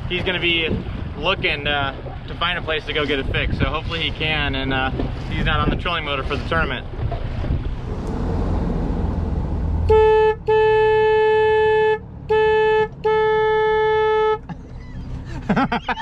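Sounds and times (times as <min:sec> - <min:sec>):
low engine rumble: 0:00.0 - 0:16.0
boat horn blasts: 0:08.9 - 0:14.6.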